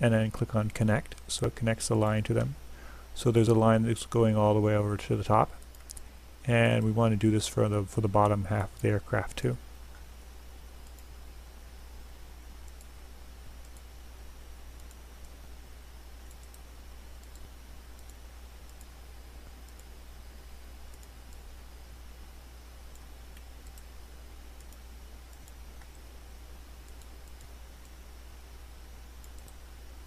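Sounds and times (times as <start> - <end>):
computer mouse clicks: 5.5 - 6.1, 10.8 - 11.1, 12.6 - 12.9, 13.6 - 13.9, 14.8 - 15.4, 16.2 - 19.9, 20.9 - 21.5, 22.9 - 23.9, 24.6 - 26.1, 26.9 - 28.0, 29.2 - 29.6.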